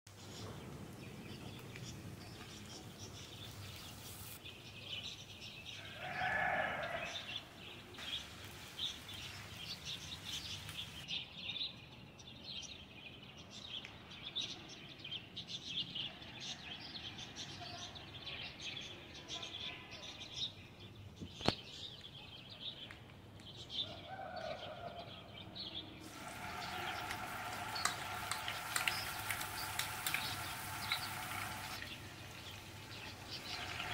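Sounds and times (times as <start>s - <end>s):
oil sizzling in a frying pan: 3.4s - 4.4s, 8.0s - 11.0s, 26.0s - 33.9s.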